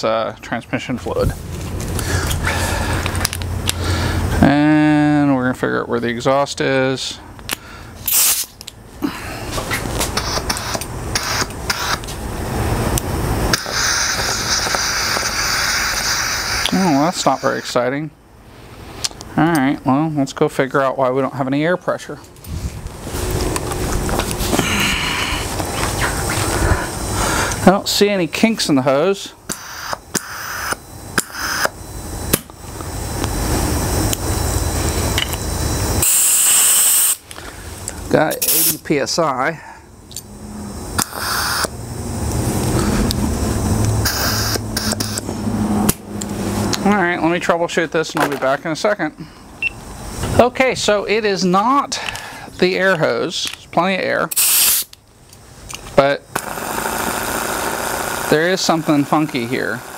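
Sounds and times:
air die grinder hissing: 7.5 - 17.8, 22.5 - 47.5, 54.3 - 55.0, 55.6 - 59.9.

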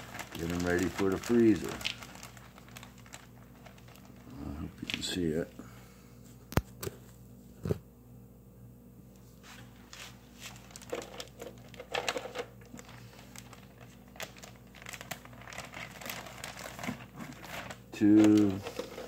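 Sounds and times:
plastic bag crinkling: 0.0 - 5.5, 9.8 - 19.0.

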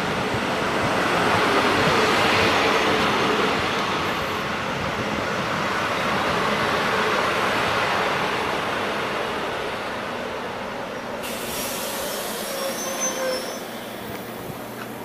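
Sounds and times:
train wheels rushing on rails: 0.0 - 15.0.

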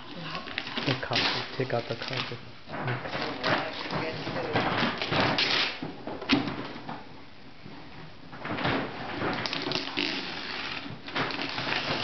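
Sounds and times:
wrapping paper rustling: 0.0 - 5.9, 8.4 - 12.0.

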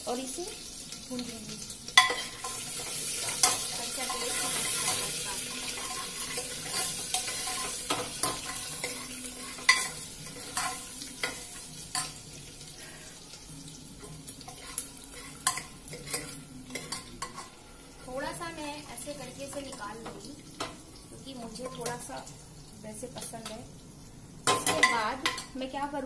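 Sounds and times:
paste sizzling in hot oil: 0.0 - 25.8
spoon stirring and scraping pot: 1.9 - 12.2, 14.0 - 18.1.

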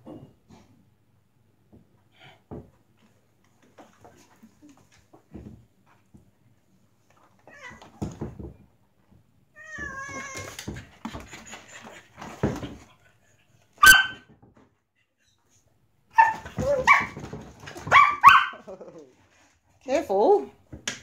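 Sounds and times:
cat and dog scuffling: 2.5 - 14.8, 15.4 - 19.9.

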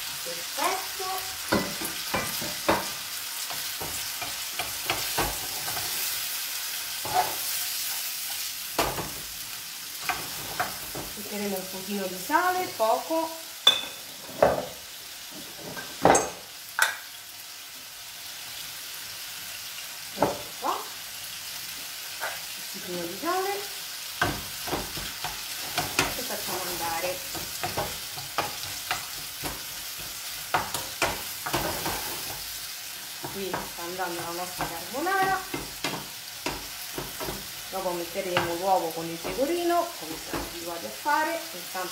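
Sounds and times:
food sizzling in a frying pan: 0.0 - 41.9
wooden spoon knocking on pan: 1.5 - 2.9, 27.3 - 32.0, 33.2 - 37.5, 40.2 - 40.6.

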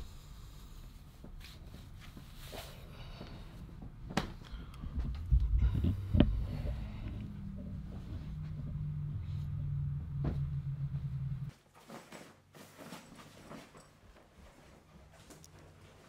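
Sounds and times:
steady low hum: 0.0 - 11.5
low heartbeat-like throbbing: 4.8 - 11.5.

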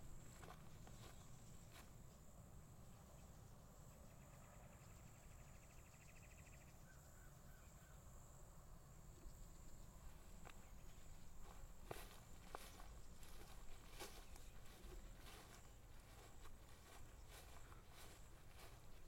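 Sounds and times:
footsteps on grass: 0.0 - 2.0, 10.0 - 19.0.

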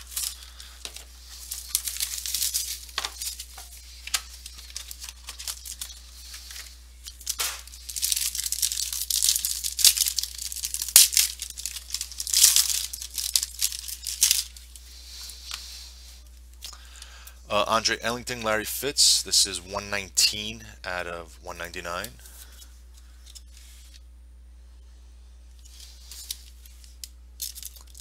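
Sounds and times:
plastic and foil wrapping crinkling: 0.0 - 15.8, 25.6 - 28.0.

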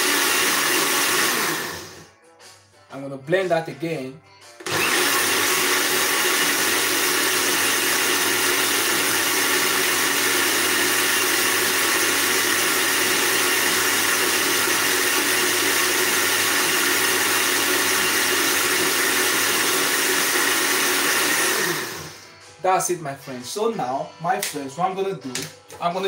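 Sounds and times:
blender motor whirring: 0.0 - 2.1, 4.6 - 22.3.

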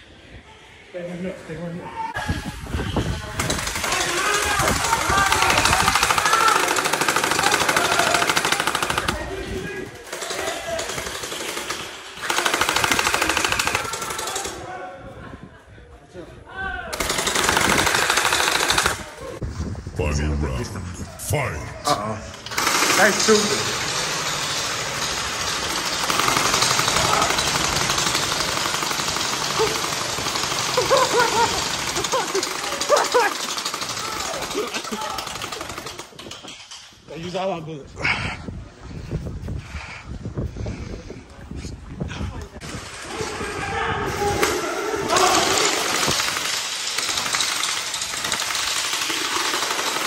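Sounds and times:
toy blaster firing full auto: 10.9 - 14.5, 17.0 - 19.1, 22.5 - 36.2, 45.1 - 50.0
voices: 19.1 - 23.9.

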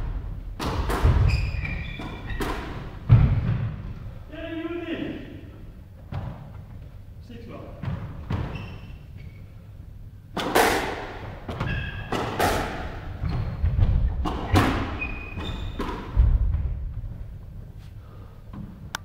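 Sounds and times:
squash ball hitting rackets and walls: 0.0 - 4.1, 7.8 - 9.0, 10.3 - 17.1
shoe squeaks: 1.2 - 2.6, 8.3 - 9.5, 11.6 - 12.4, 13.1 - 16.0.

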